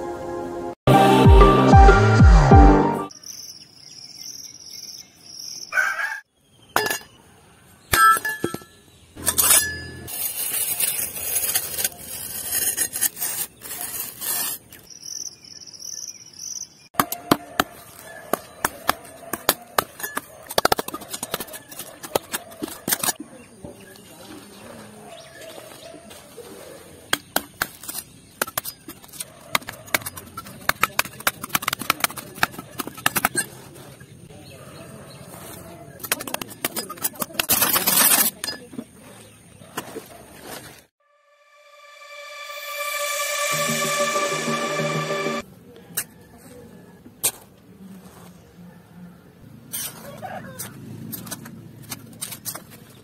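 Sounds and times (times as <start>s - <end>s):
metal blade digging stony soil: 9.2s - 14.9s, 17.0s - 23.2s, 27.1s - 34.1s, 35.9s - 38.7s.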